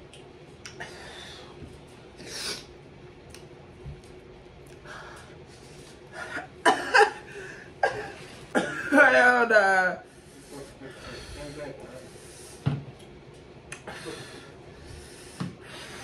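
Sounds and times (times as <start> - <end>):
woman breathing hard and hissing: 13.9 - 16.0.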